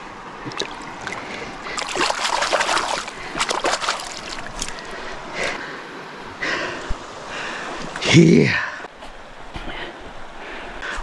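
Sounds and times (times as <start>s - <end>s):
goggles splashing in shallow water: 0.5s - 4.9s.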